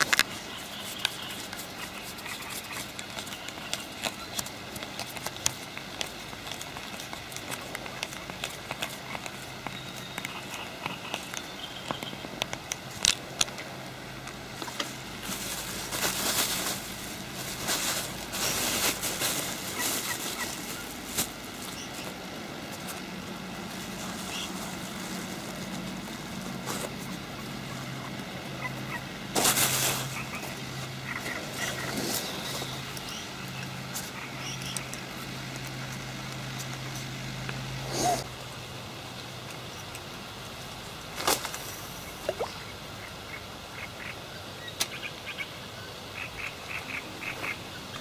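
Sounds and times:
steady low hum: 0:00.0 - 0:48.0
plastic bag rustling: 0:14.2 - 0:37.1.

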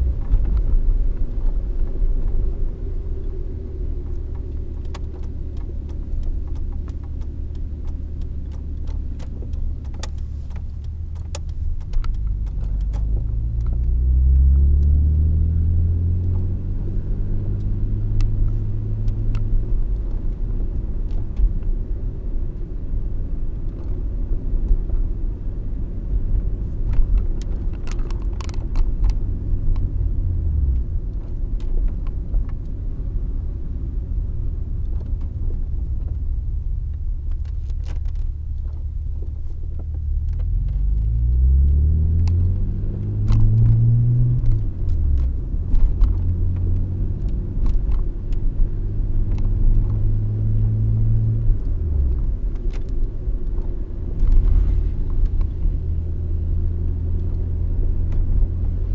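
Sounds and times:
light clicks and rattles: 0:00.0 - 0:16.5, 0:23.5 - 0:58.9
car engine and road rumble: 0:00.0 - 0:58.9.

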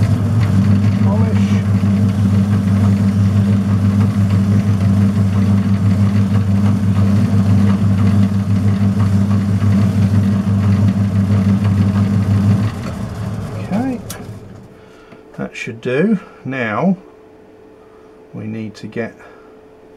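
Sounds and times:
strip polishing spinning shaft: 0:00.0 - 0:14.8
metal lathe motor hum: 0:00.0 - 0:15.1.

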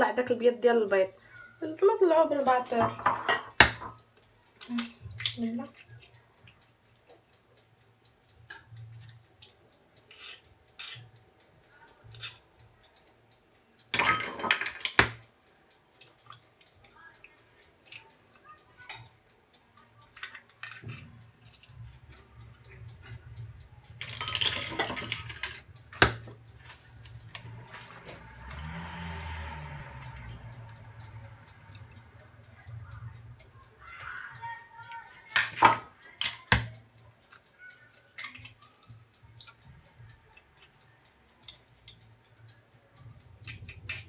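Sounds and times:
eggshells tapping on bowls: 0:02.7 - 0:04.0, 0:14.0 - 0:15.2, 0:24.0 - 0:27.9
eggs cracking and clattering: 0:02.8 - 0:06.1, 0:10.1 - 0:11.1, 0:13.9 - 0:15.2, 0:20.0 - 0:21.8, 0:23.9 - 0:27.9, 0:35.2 - 0:36.7.

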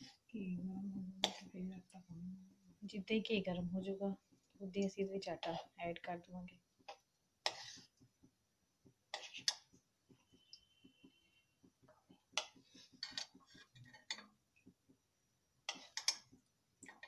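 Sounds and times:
spoon scraping and clinking on pan: 0:12.4 - 0:14.2, 0:15.7 - 0:16.3.

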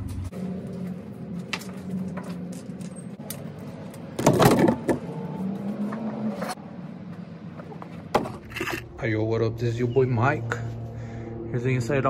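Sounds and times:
low steady hum: 0:08.5 - 0:12.0.

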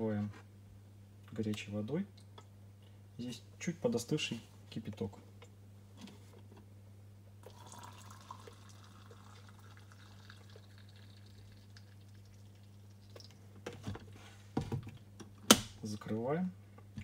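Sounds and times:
hot water pouring into glass: 0:07.4 - 0:13.3.

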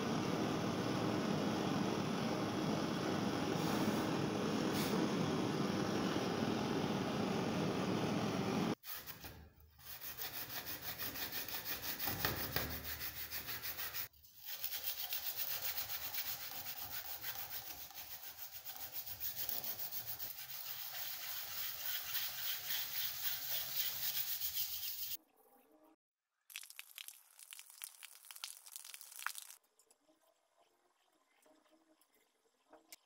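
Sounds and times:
gas torch flame hissing: 0:02.7 - 0:06.0
steel blade sanding on plate: 0:08.8 - 0:25.2.

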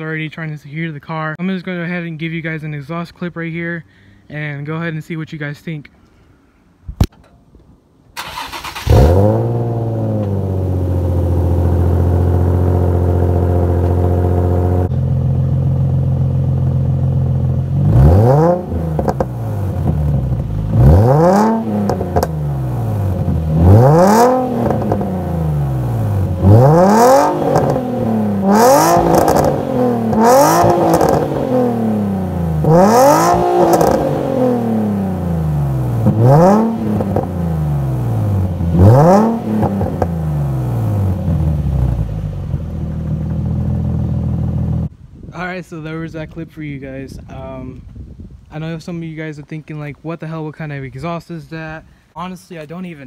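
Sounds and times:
car engine idling and revving: 0:08.2 - 0:44.9.

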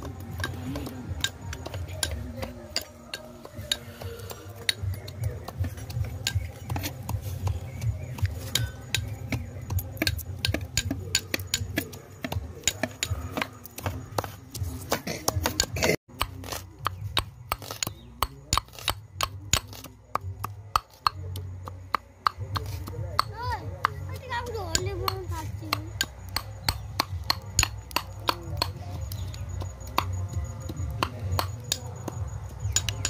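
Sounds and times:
pestle knocking in metal mortar: 0:00.0 - 0:33.0.

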